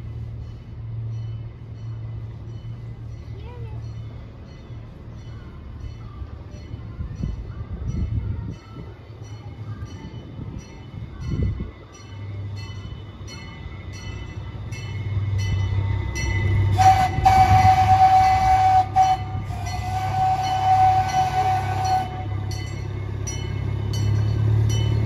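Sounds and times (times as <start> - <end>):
low rumble of running train: 0.0 - 25.0
train whistle blasts: 16.4 - 22.6.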